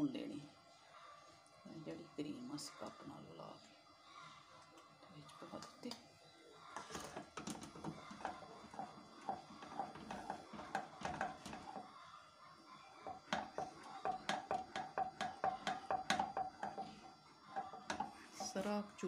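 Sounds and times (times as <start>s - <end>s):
wooden spoon scraping a saucepan: 6.7s - 11.9s, 13.0s - 19.0s.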